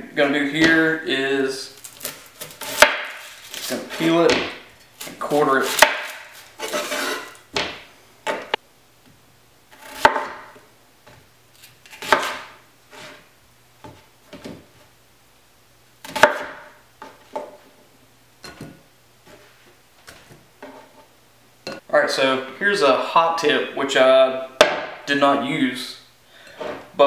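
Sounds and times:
knife crunching through onion: 0:01.8 - 0:04.2, 0:04.9 - 0:07.4, 0:11.6 - 0:13.2
knife tapping and scraping: 0:01.8 - 0:08.6, 0:18.4 - 0:21.8.

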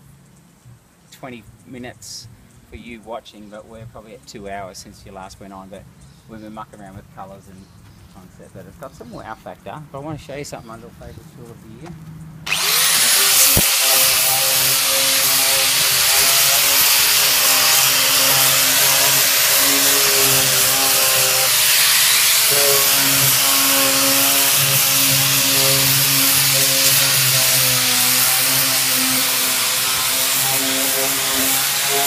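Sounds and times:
electric power sander running: 0:12.5 - 0:32.0.

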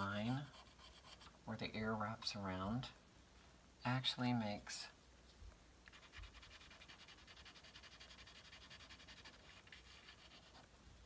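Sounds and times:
pencil scratching on paper: 0:00.0 - 0:01.4, 0:05.9 - 0:10.7.

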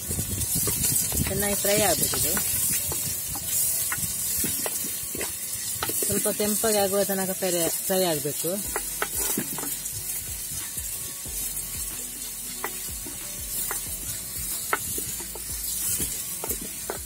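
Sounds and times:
onions sizzling in oil: 0:00.0 - 0:17.0
wooden spatula scraping pot: 0:00.6 - 0:06.6, 0:08.7 - 0:09.8.

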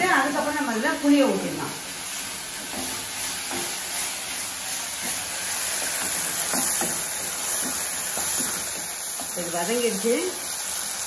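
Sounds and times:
vegetables sizzling in oil: 0:00.0 - 0:11.0
wooden spatula scraping: 0:01.6 - 0:09.8.

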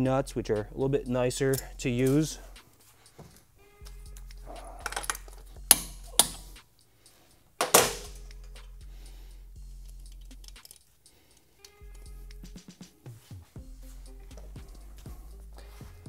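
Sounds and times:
soft background music: 0:00.0 - 0:16.0
small hardware clicking: 0:04.1 - 0:06.7, 0:09.8 - 0:12.1.

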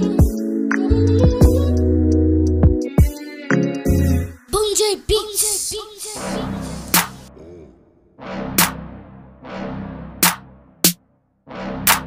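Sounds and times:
electronic music with drum-machine beat: 0:00.0 - 0:04.3.

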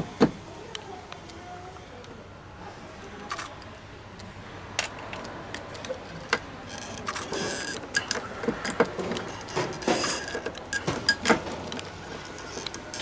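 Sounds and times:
tools and parts clicking: 0:04.8 - 0:13.0
scraping rattle: 0:06.6 - 0:13.0.

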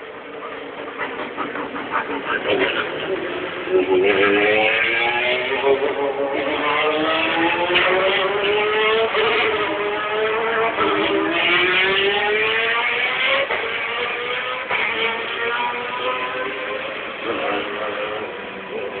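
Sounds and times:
race car engines accelerating: 0:00.0 - 0:19.0.

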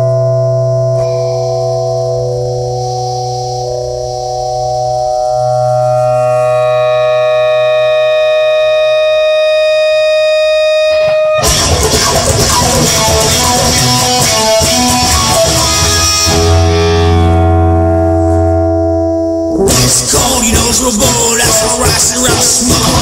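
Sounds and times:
guitar instrumental music: 0:00.0 - 0:23.0
deep bass note: 0:14.7 - 0:21.9.

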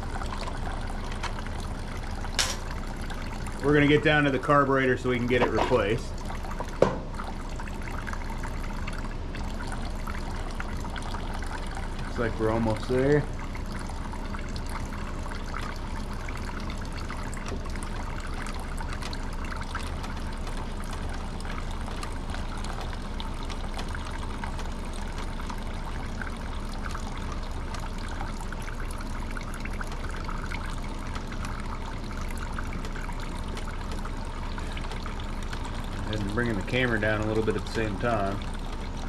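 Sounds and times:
oil trickling into drain pan: 0:00.0 - 0:39.0.

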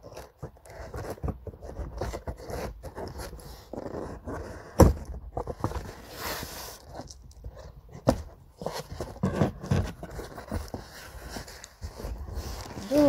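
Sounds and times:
cardboard scraping and rustling: 0:00.0 - 0:13.0.

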